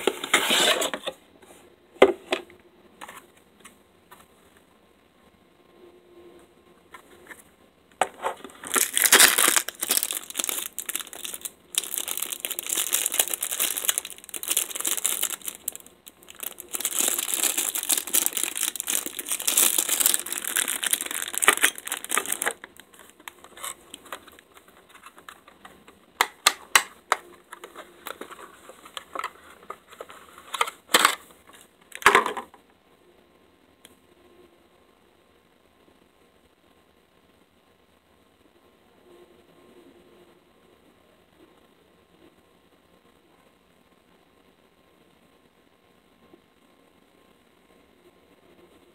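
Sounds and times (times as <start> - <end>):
plastic packaging crinkling: 8.2 - 32.4.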